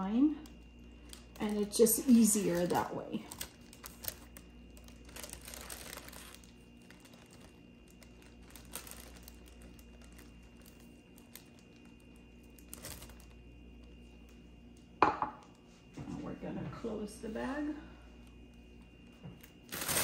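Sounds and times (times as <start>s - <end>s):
plastic bag crinkling: 0.4s - 14.0s, 19.4s - 20.0s.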